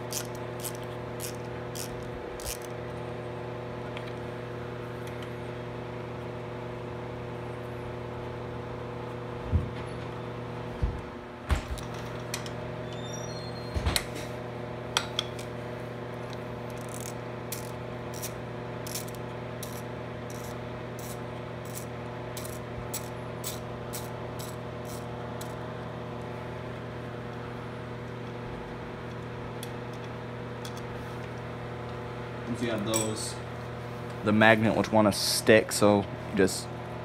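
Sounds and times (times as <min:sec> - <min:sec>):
ratchet clicks: 0:00.0 - 0:02.8, 0:16.3 - 0:25.6
steady hum: 0:00.0 - 0:37.0.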